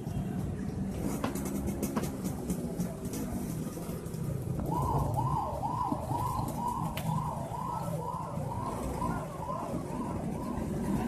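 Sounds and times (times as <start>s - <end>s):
low traffic noise: 0.0s - 11.0s
siren warbling: 4.6s - 11.0s.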